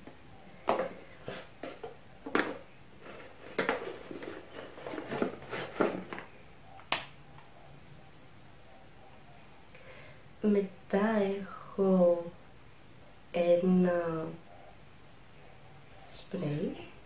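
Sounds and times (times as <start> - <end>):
plastic containers clicking and tapping: 0.0 - 1.0, 1.6 - 7.1
hands rummaging through packaging: 1.6 - 6.4.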